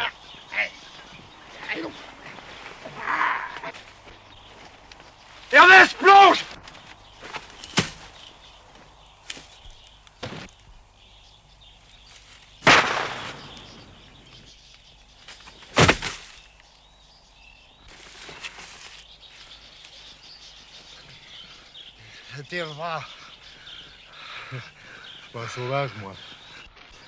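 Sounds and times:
birds: 0.0s - 27.0s
faint sharp gunshot cracks: 12.6s - 13.8s
loud gunshots with ringing tails: 12.6s - 14.1s.

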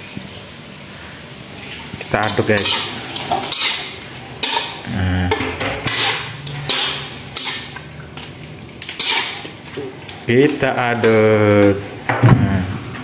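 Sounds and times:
metal spatula scraping a wok: 1.6s - 4.8s, 5.5s - 7.8s, 8.9s - 9.8s.

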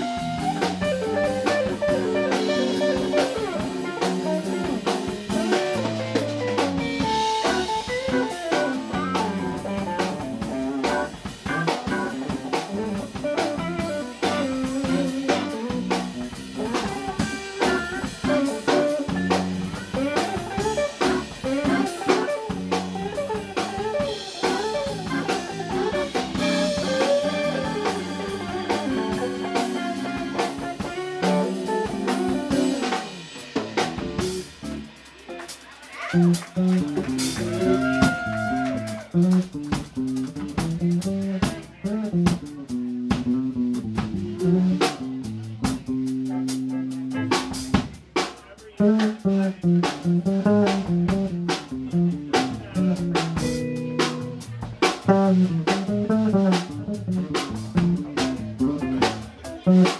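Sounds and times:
organ: 0.0s - 34.9s
electric guitar: 0.0s - 48.0s, 48.8s - 59.9s
bass: 0.0s - 59.9s
drum kit: 0.0s - 59.9s.

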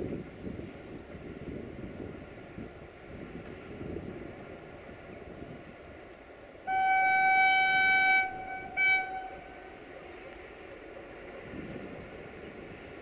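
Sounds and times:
low rumble of train: 0.0s - 13.0s
locomotive horn blasts: 6.7s - 9.8s.

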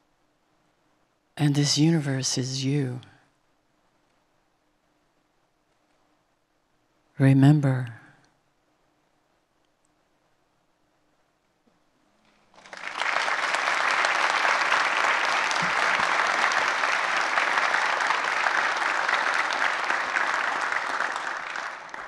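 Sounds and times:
audience applauding: 12.5s - 22.0s.

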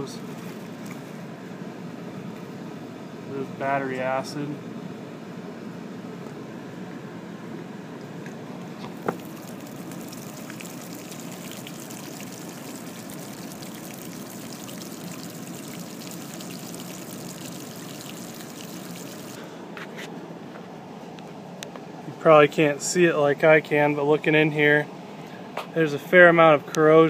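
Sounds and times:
liquid pouring onto grass: 9.0s - 19.4s.

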